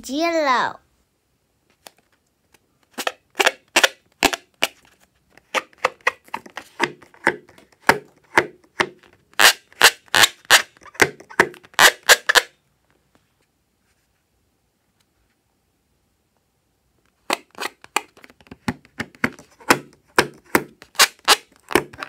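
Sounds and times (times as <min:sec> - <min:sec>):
fingers rubbing rubber balloon: 0:09.4 - 0:12.4.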